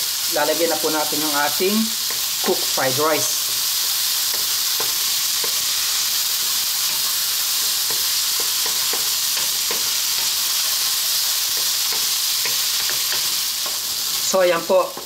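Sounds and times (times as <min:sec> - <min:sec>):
vegetables sizzling in oil: 0:00.0 - 0:15.0
spatula scraping and tapping pan: 0:03.5 - 0:10.8, 0:11.5 - 0:13.8.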